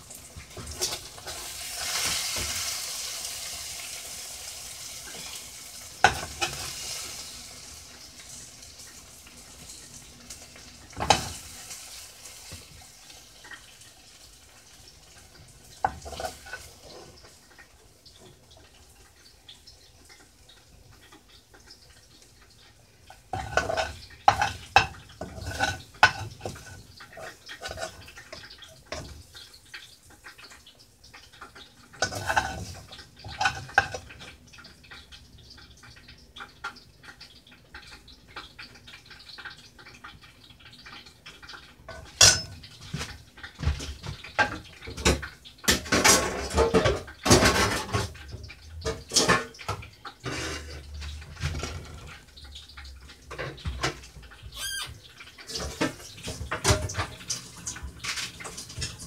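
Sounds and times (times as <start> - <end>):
utensil scraping a frying pan: 0.5 - 3.6, 4.9 - 7.3, 15.7 - 17.6, 23.0 - 29.5, 31.9 - 34.3, 48.8 - 52.2.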